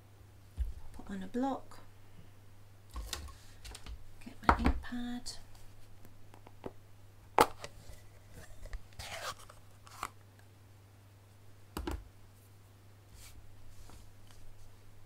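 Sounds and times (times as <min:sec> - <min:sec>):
plastic case snapping open: 0:07.4 - 0:07.8.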